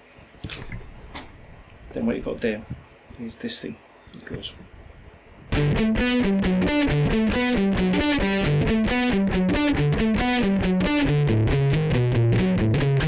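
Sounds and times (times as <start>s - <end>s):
palm-muted electric guitar riff: 5.5s - 13.0s.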